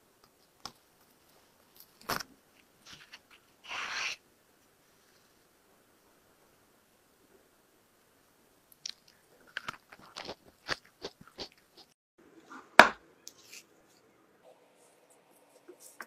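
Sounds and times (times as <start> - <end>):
crisp chewing crunches: 8.8 - 12.0.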